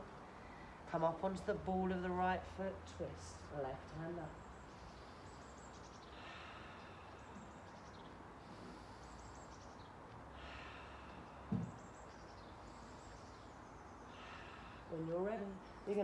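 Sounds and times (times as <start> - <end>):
faint breathing through the nose: 4.5 - 15.0.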